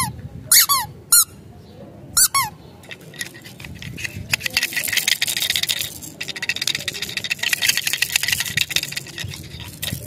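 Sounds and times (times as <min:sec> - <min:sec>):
plastic toy rattle shaking: 0:02.2 - 0:10.0.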